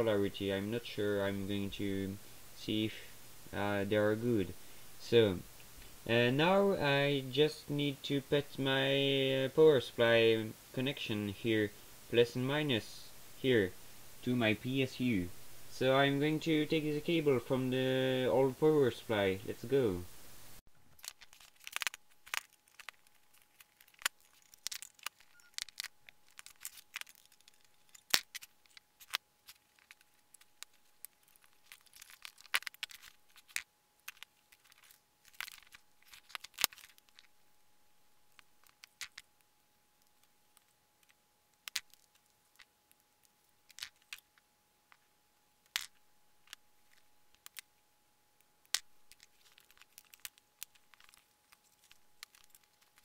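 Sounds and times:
faint high hum: 0.0s - 53.0s
cable rustling: 20.6s - 37.6s, 48.6s - 53.0s.

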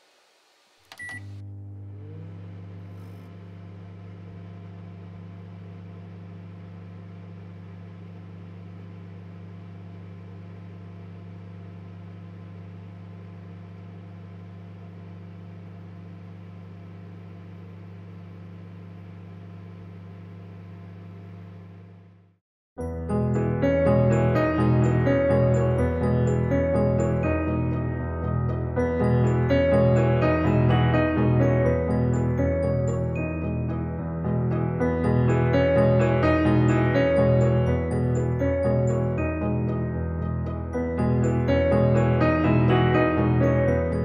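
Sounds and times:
microwave oven humming: 0.8s - 44.0s.

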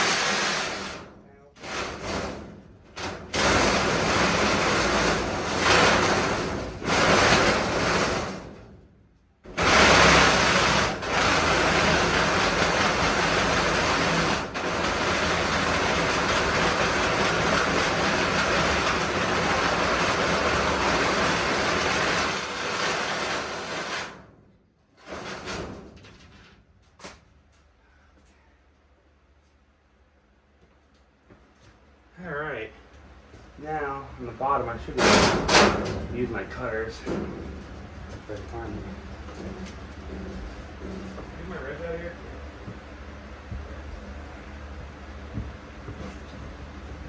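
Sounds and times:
reciprocating saw cutting sheet metal: 0.0s - 8.6s, 9.5s - 24.3s, 34.9s - 36.0s.

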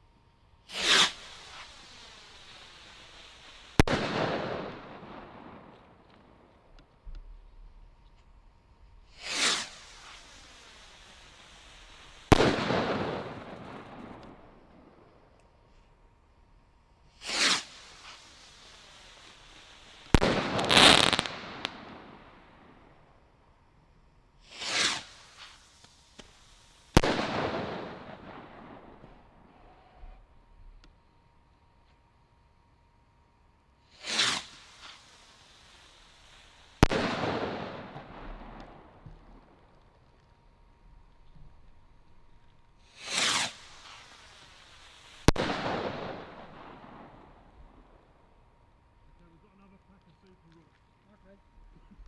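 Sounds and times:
firework rocket whoosh: 0.7s - 6.0s, 9.0s - 15.0s, 17.1s - 22.9s, 24.4s - 30.2s, 33.8s - 39.8s, 42.8s - 48.1s
firework bang echoing: 0.7s - 6.5s, 9.1s - 15.1s, 17.2s - 22.9s, 26.2s - 29.5s, 34.0s - 35.0s, 36.7s - 39.8s, 42.9s - 48.2s.

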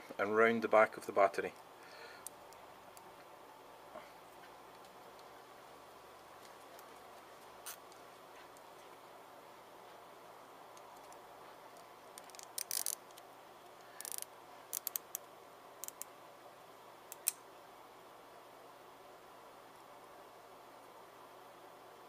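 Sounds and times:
faint room hiss: 0.0s - 22.0s
cable tie ratchet clicking: 12.2s - 13.2s, 14.0s - 15.2s, 15.8s - 16.1s, 17.1s - 17.4s.

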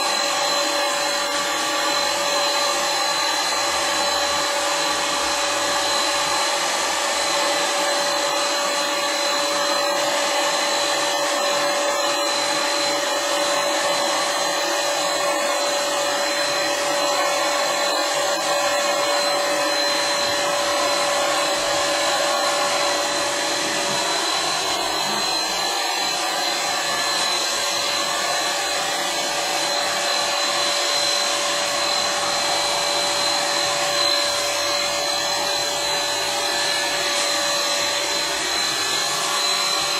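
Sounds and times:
electric paint sprayer hissing: 0.0s - 39.9s.

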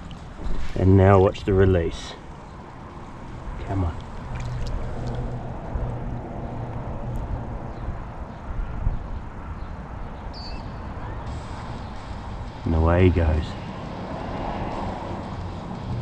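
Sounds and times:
wind buffeting microphone: 0.0s - 12.6s.

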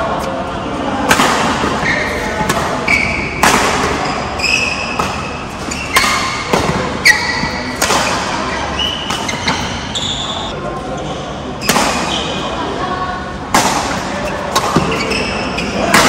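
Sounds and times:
rackets hitting shuttlecock: 1.0s - 10.0s, 11.6s - 12.4s, 13.5s - 16.0s
shoes squeaking on court: 1.8s - 12.4s, 14.2s - 15.9s.

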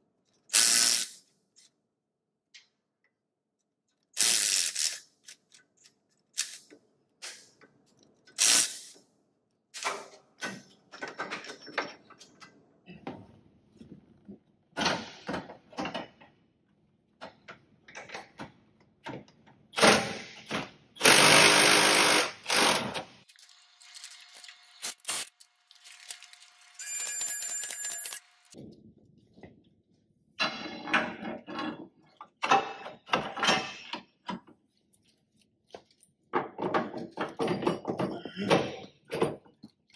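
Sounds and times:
tools clanking and rattling: 36.4s - 39.7s.

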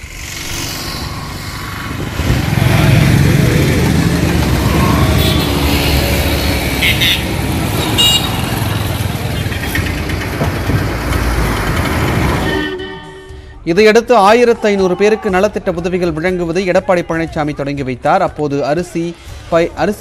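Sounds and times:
passing cars and motorcycles: 0.0s - 13.2s
short horn toots: 4.6s - 8.6s, 12.4s - 13.6s.

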